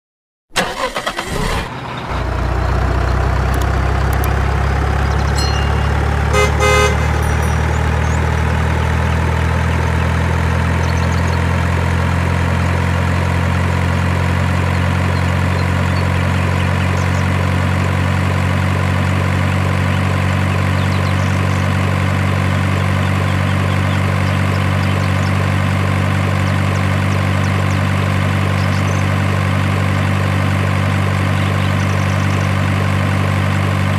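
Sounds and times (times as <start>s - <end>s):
heavy truck engine idling: 0.6s - 33.9s
truck horn toot: 5.3s - 9.1s.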